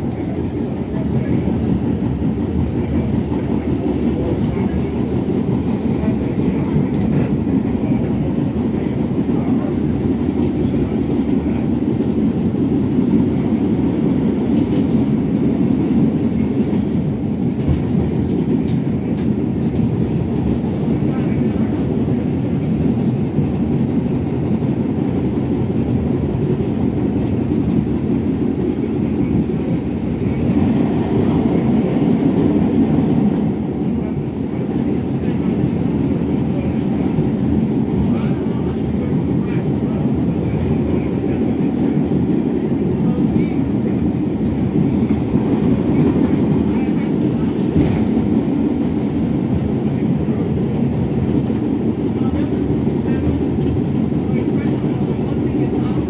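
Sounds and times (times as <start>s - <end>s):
subway train rumbling on track: 0.0s - 56.0s.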